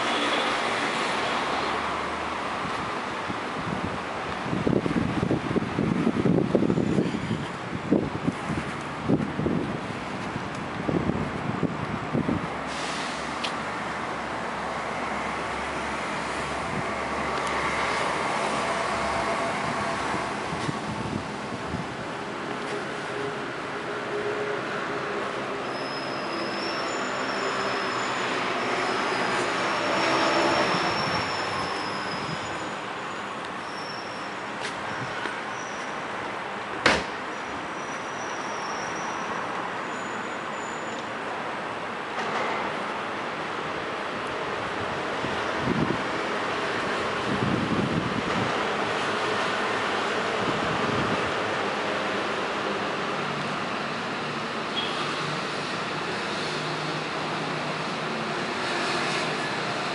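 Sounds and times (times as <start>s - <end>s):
city street traffic: 0.0s - 59.9s
sharp knock: 36.8s - 37.2s.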